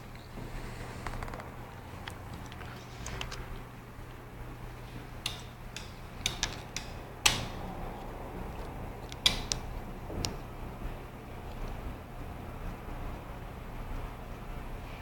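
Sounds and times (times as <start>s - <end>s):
sharp clicks and light knocks: 5.0s - 10.4s.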